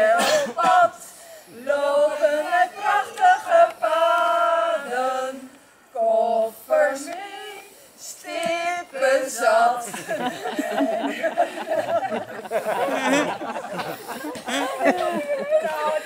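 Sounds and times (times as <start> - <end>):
women singing together: 0.0 - 12.3.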